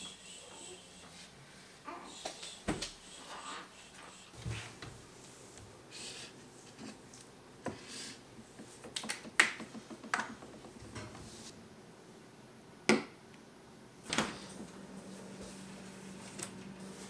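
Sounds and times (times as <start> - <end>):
plastic bottles clicking and tapping: 8.8 - 10.8.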